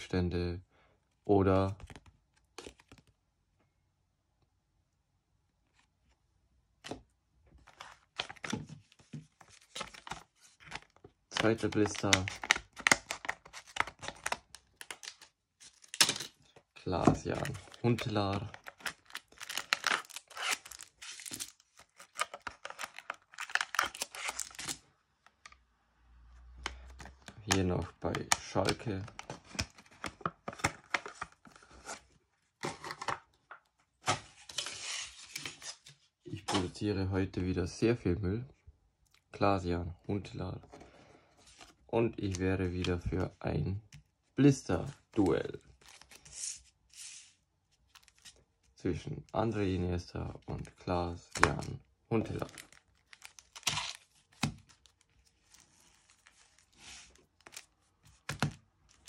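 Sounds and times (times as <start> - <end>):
foil packs crinkling: 17.2 - 24.8, 51.5 - 59.0
plastic crinkling rustles: 52.1 - 59.0.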